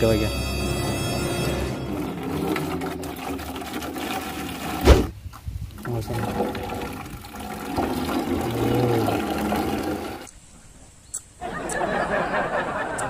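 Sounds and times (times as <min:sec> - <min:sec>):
liquid gurgling through hose: 0:01.8 - 0:10.3.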